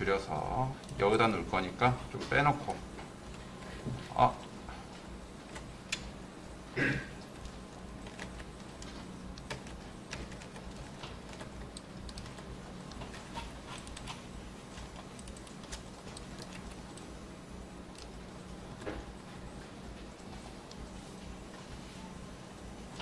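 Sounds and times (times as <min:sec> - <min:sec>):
low steady hum: 0:00.0 - 0:23.0
computer mouse and keyboard clicking: 0:05.4 - 0:06.1, 0:07.2 - 0:17.2, 0:17.8 - 0:19.2, 0:20.0 - 0:21.7.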